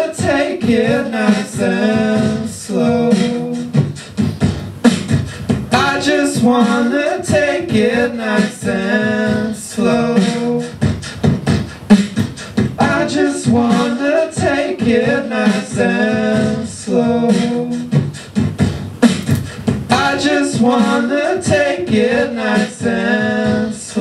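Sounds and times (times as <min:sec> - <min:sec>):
beatboxing into a microphone: 0:00.0 - 0:24.0
wordless sung vocal harmonies: 0:00.0 - 0:24.0.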